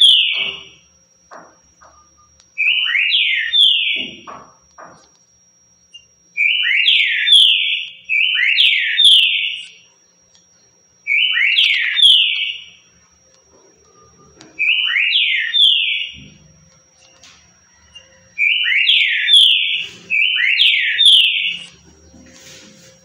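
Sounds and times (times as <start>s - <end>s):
bird singing whistled phrases: 17.9s - 21.8s.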